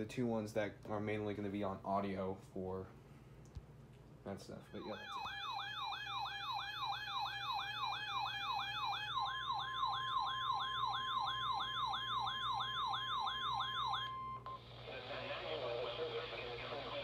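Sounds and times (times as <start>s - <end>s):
high warning tone: 4.6s - 14.8s
falling siren sweep: 4.8s - 14.2s.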